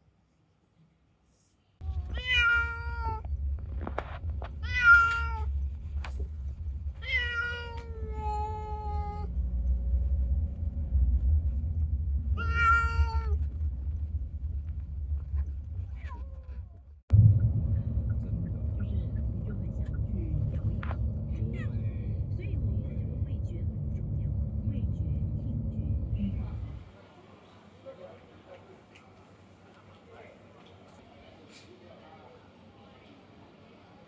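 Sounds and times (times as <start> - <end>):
cat meowing: 1.8 - 3.3, 4.6 - 5.5, 7.0 - 9.3, 12.4 - 13.4
low steady rumble: 1.8 - 27.2.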